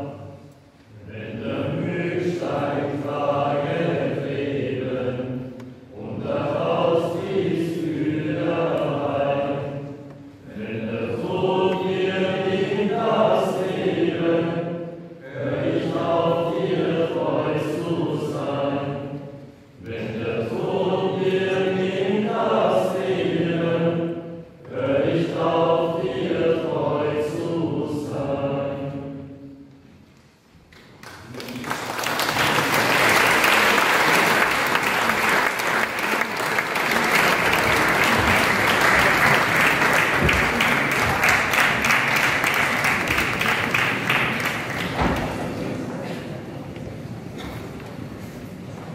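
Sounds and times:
choir singing: 0.0 - 29.8, 32.2 - 46.0
audience applause: 30.9 - 45.6.

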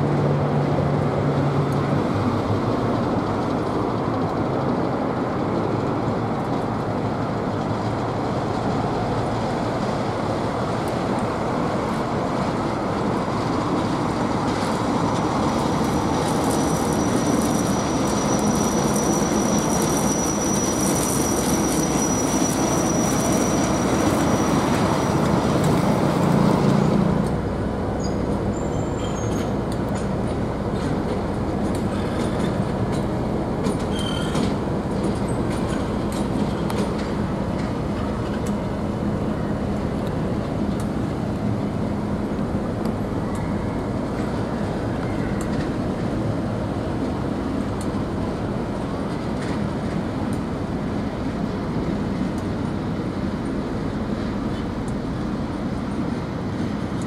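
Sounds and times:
diesel locomotive engine: 0.0 - 57.0
high wheel squeal: 15.9 - 25.6, 28.0 - 29.6, 33.7 - 34.5.

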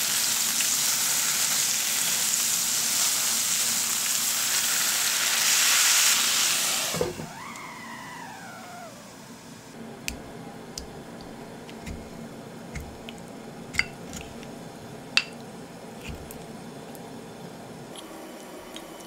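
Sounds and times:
spatula tapping glass container: 10.1 - 12.2, 12.8 - 14.5, 16.0 - 16.4.

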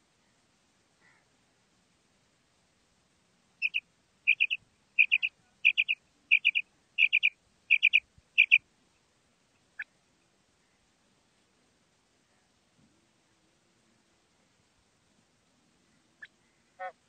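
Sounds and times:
quail calling: 3.6 - 8.6.

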